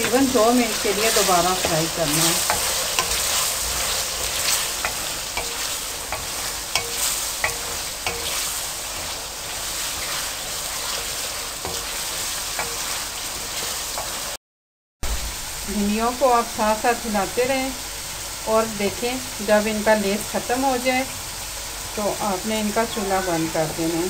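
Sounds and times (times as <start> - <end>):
food sizzling in hot oil: 0.0 - 14.4, 15.0 - 24.0
wooden spoon scraping a wok: 0.0 - 14.4.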